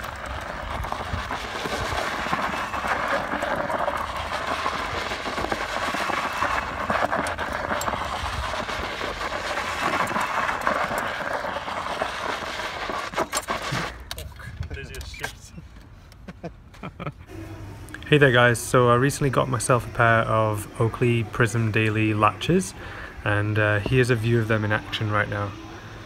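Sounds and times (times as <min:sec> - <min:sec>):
scooter tyres skidding on dirt: 0:00.0 - 0:14.1.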